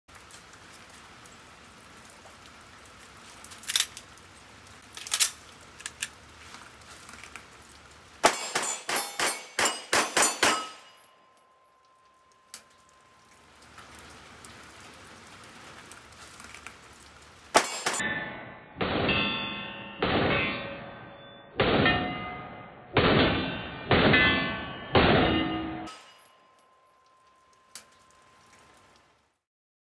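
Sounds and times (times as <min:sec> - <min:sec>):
pistol shots: 0:08.2 - 0:10.8, 0:17.6 - 0:18.0.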